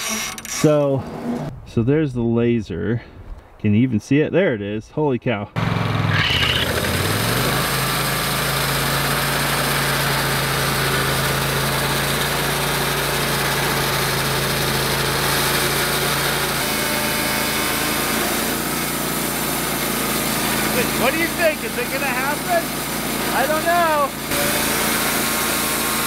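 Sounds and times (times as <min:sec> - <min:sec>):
band blade cutting log: 0:05.6 - 0:26.0
sawmill engine running: 0:05.6 - 0:26.0.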